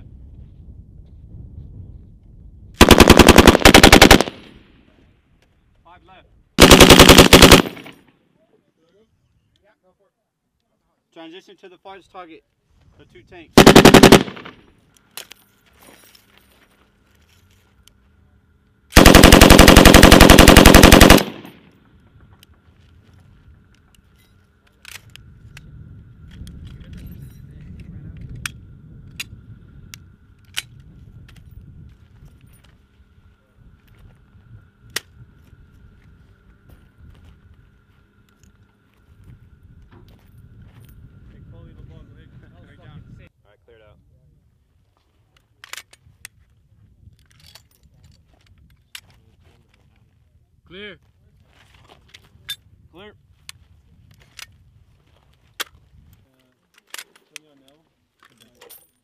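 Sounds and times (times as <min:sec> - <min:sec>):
gunfire echo: 0:02.8 - 0:04.6, 0:06.6 - 0:08.0, 0:13.6 - 0:14.6, 0:19.0 - 0:21.6
machine gun firing burst: 0:02.8 - 0:04.6, 0:06.6 - 0:08.0, 0:13.6 - 0:14.6, 0:19.0 - 0:21.6.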